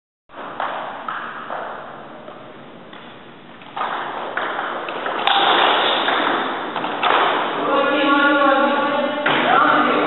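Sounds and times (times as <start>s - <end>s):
table tennis ball hits: 2.9s - 7.6s.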